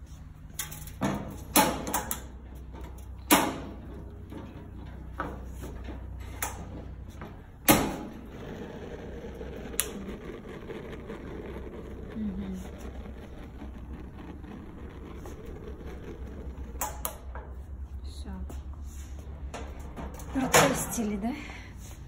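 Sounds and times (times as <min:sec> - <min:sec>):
gas burner hissing: 0:00.0 - 0:22.0.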